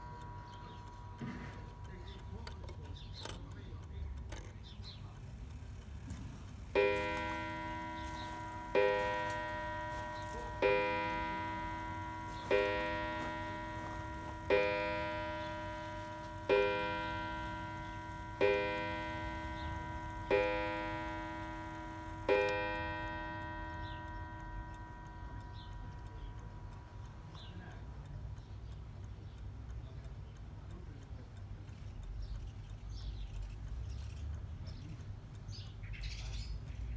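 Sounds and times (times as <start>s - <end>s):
clock striking on gong: 0.0s - 3.4s, 6.6s - 27.9s.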